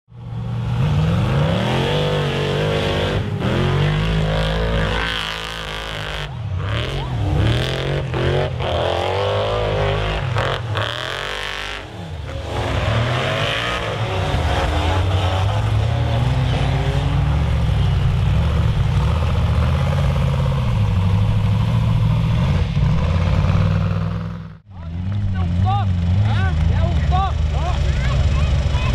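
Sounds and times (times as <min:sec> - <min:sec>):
race car engines revving: 0:00.1 - 0:28.9.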